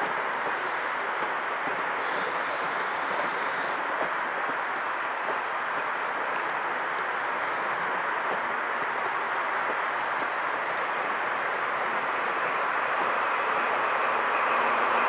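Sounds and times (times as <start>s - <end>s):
faint clicks of wheels: 0.0s - 15.0s
train wheels rushing on track: 0.0s - 15.0s.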